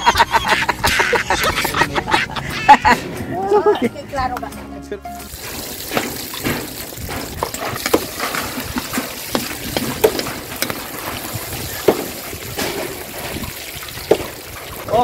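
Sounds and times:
garlic sizzling in oil: 5.3 - 14.9.

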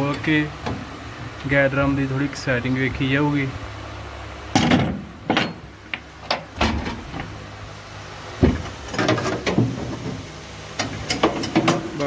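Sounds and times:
steady low hum: 0.0 - 12.0
sharp metal clanks: 4.5 - 5.8.

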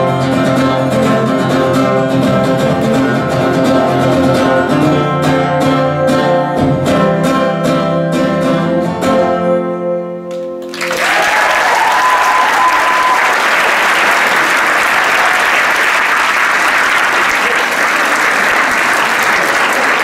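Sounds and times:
audience applause: 10.6 - 20.0.

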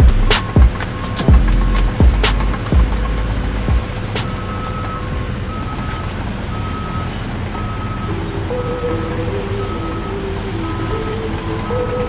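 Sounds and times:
engine noise: 0.0 - 12.0
truck reversing alarm beeps: 0.0 - 12.0
music melody: 7.6 - 12.0.

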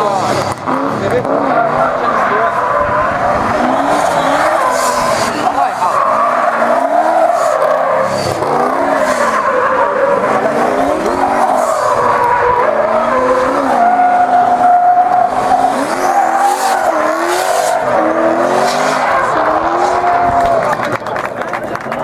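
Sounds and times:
tyres squealing: 0.0 - 20.4
car engine revving: 0.0 - 21.2.

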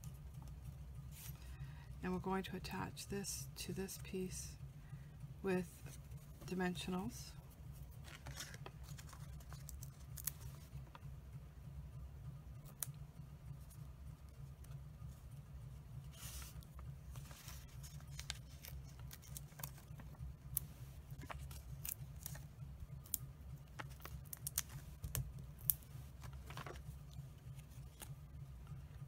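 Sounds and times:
low steady hum: 0.0 - 29.0
paper rustling: 7.8 - 10.8, 16.1 - 22.5, 25.8 - 28.2.

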